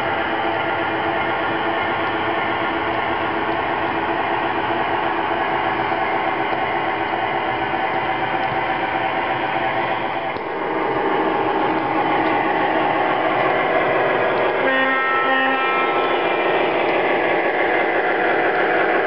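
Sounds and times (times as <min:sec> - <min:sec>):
model train wheels whirring on track: 0:00.0 - 0:19.0
continuous hum: 0:04.9 - 0:19.0.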